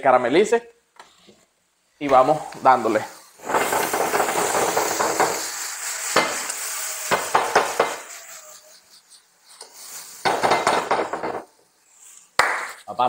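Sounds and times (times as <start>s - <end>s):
onions sizzling in a frying pan: 2.1s - 12.2s.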